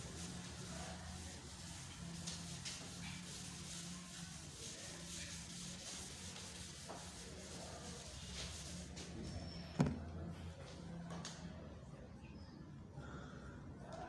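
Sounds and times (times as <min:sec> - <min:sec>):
eraser rubbing on blackboard: 0:00.0 - 0:09.0.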